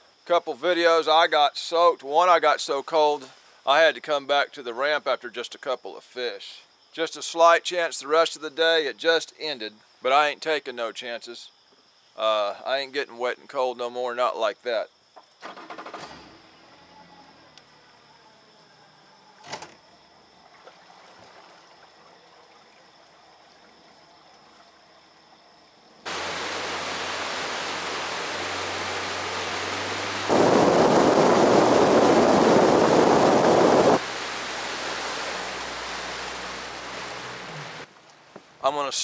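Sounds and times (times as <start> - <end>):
rush of wind and water: 26.1 - 37.9.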